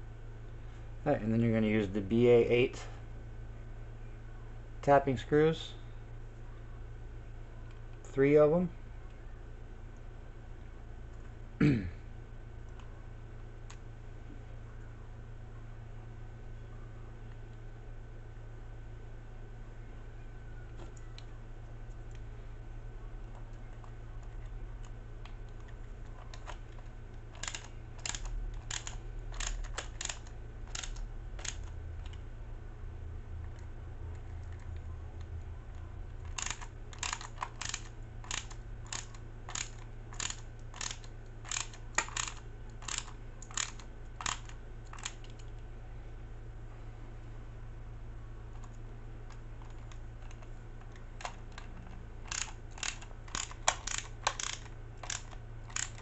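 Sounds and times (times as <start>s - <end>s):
low steady hum: 0.0s - 56.0s
screwdriver driving screws clicking: 36.3s - 45.2s, 52.3s - 56.0s.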